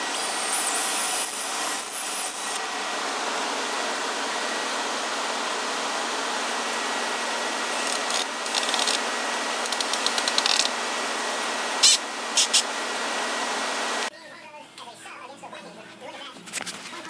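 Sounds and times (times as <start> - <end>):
small power tool whining: 0.0 - 2.7, 7.6 - 10.8
tool scraping plastic and wood: 7.8 - 9.0, 9.6 - 10.8.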